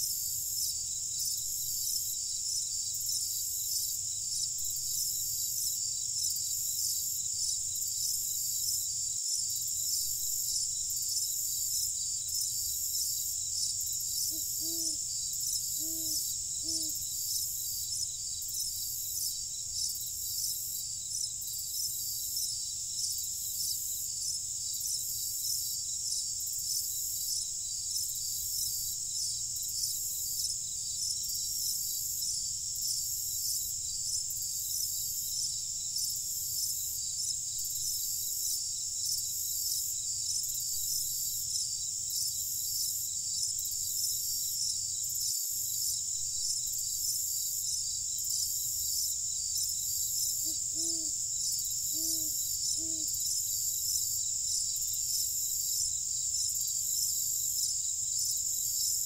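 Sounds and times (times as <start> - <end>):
crickets chirping: 0.0 - 59.0.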